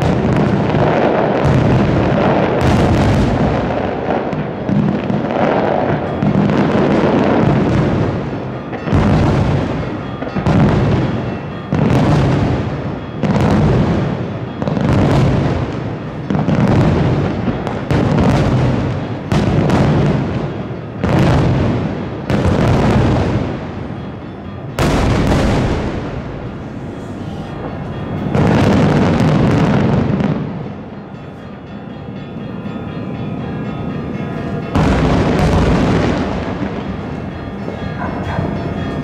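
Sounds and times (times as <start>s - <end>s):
firework shells booming: 0.0s - 24.0s, 24.8s - 30.8s, 34.7s - 39.0s.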